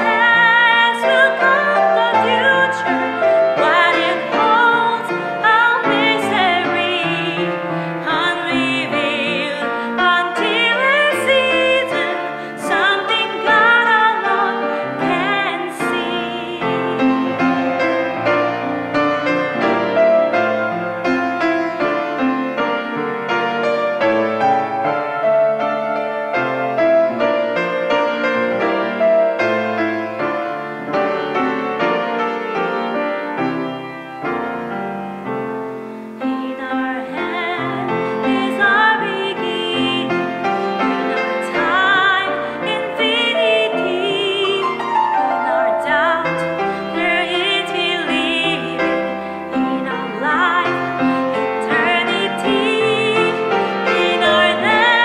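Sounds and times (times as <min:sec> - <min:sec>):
person singing with vibrato: 0:00.0 - 0:18.4, 0:35.9 - 0:55.0
piano playing: 0:00.0 - 0:55.0.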